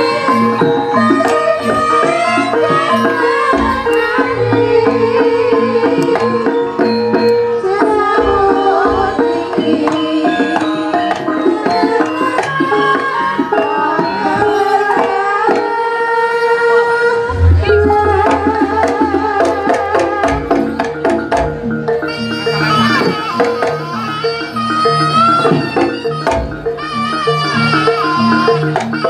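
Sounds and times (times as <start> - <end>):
pitched melody instruments: 0.0 - 15.2, 17.0 - 29.0
hand drums playing: 0.0 - 16.0, 17.1 - 29.0
deep low drum strokes: 17.3 - 19.6.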